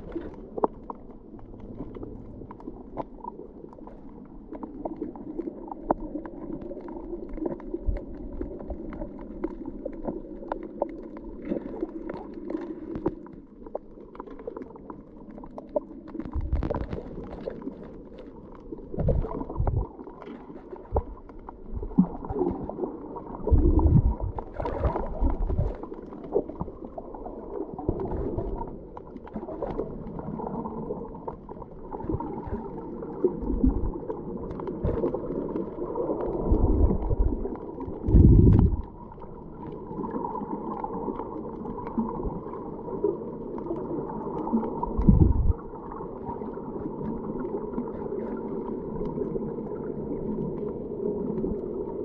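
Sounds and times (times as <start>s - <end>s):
muffled underwater rush: 0.0s - 52.0s
low underwater thumps: 38.1s - 38.9s, 45.0s - 45.6s.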